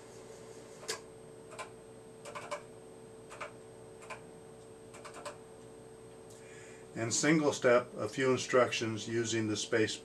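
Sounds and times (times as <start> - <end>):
faint steady hum: 0.0 - 10.0
keyboard keys clicking: 4.9 - 5.4.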